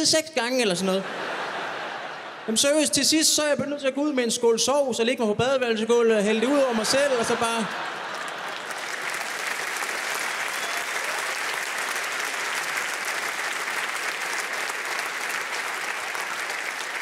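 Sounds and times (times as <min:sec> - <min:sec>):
audience applauding: 0:06.4 - 0:17.0.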